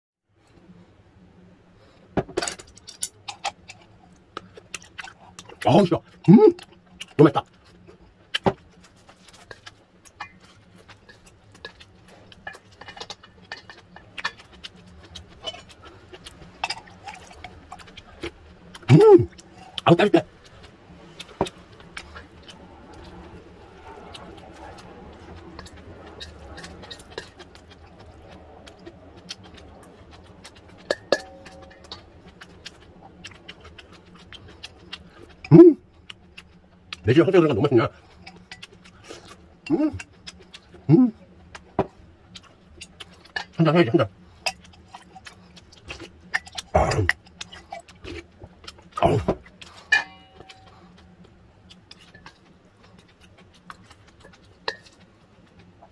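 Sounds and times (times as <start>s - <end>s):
faint low hum: 0.3s - 55.9s
steel bowl ringing: 30.9s - 31.9s, 49.9s - 50.7s.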